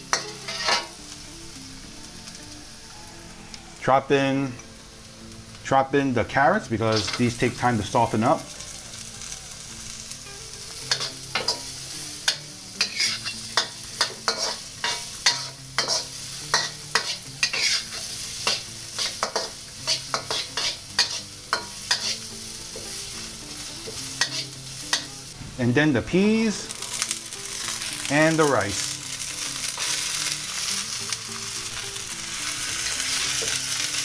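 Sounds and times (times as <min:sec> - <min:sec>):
metal spatula scraping wok: 0:00.0 - 0:01.1, 0:06.7 - 0:08.4, 0:10.0 - 0:25.4, 0:26.4 - 0:34.0
vegetables sizzling in oil: 0:00.0 - 0:34.0.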